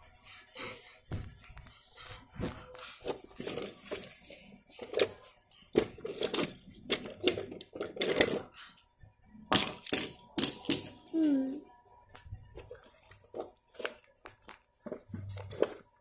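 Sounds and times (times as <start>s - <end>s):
phone being handled: 12.1s - 16.0s.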